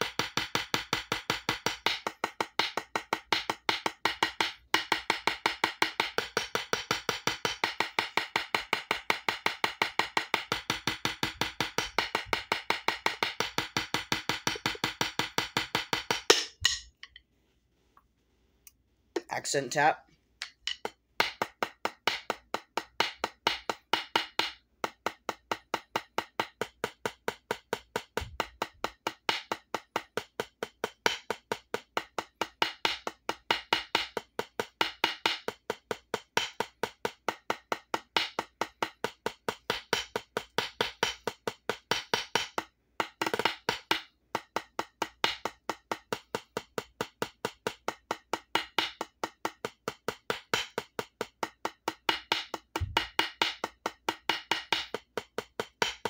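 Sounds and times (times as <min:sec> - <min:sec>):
drumsticks on practice pad: 0:01.6 - 0:17.3, 0:19.2 - 0:29.8.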